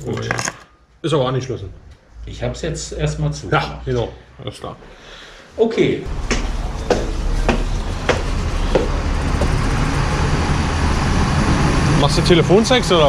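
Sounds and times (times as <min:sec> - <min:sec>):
street traffic rumble: 0:06.0 - 0:13.0
footsteps: 0:06.1 - 0:09.8.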